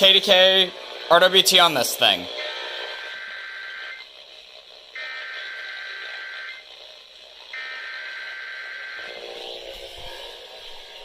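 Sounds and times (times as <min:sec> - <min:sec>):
data tone bursts through speaker: 0:02.4 - 0:04.0, 0:05.0 - 0:06.6.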